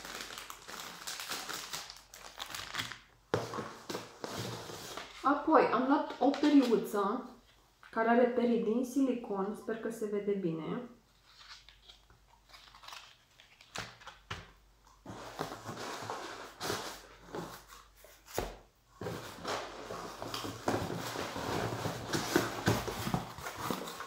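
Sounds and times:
plastic packaging and cardboard crinkling: 0.0s - 5.3s, 11.1s - 24.0s.

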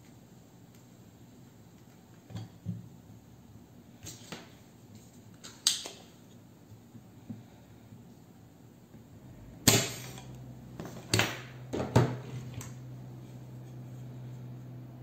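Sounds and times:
low steady hum: 7.2s - 15.0s.

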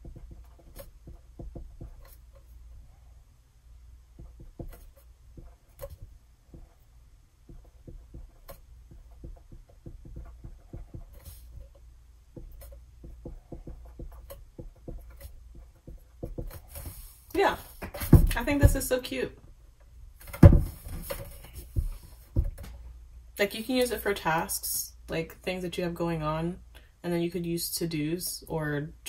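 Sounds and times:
marker tapping on whiteboard: 0.0s - 2.4s, 4.1s - 6.8s, 7.4s - 17.0s, 20.3s - 22.8s.

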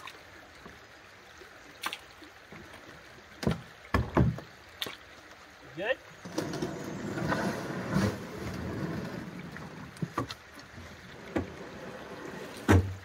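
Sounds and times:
knocks against canoe hull: 3.4s - 4.5s, 12.6s - 13.0s
hull scraping over stones: 6.2s - 10.3s, 11.1s - 12.8s.

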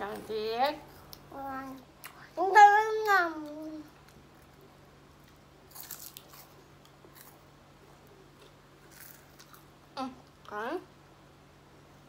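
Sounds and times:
crunching and chewing wafer: 4.0s - 9.7s.

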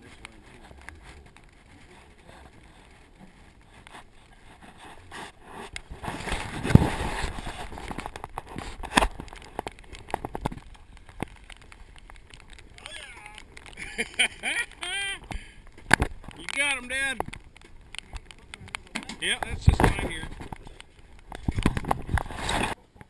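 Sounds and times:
microphone rubbing against clothing: 0.0s - 9.1s, 21.4s - 22.8s.

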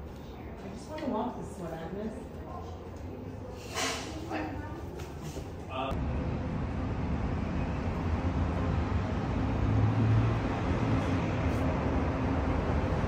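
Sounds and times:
distant street traffic: 0.0s - 13.0s.

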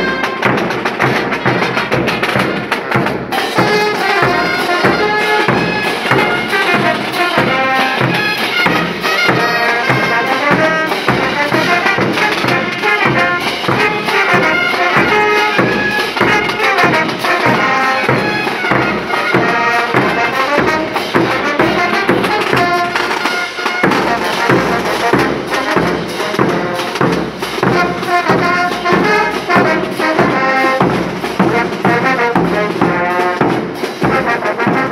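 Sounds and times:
brass melody: 0.0s - 34.9s
snare drum marching beat: 0.0s - 34.9s.

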